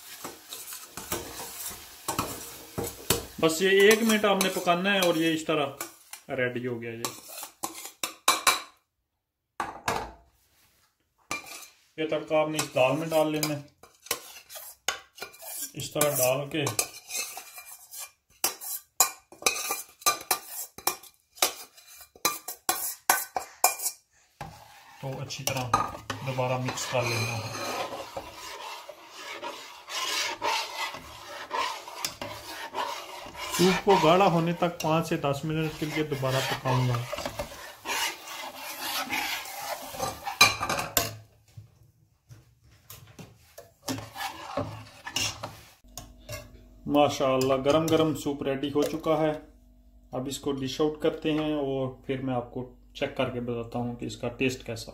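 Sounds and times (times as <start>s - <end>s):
metal spoon scraping steel pan: 0.0s - 6.3s, 7.0s - 8.6s, 11.3s - 41.2s, 43.6s - 49.4s.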